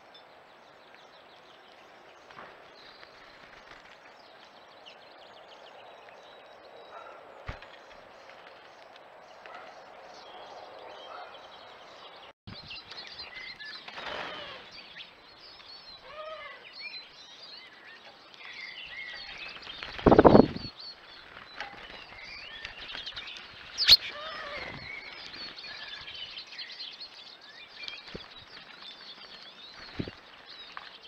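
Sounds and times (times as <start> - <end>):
steady outdoor hiss: 0.0 - 31.0
finches chirping: 23.2 - 26.8.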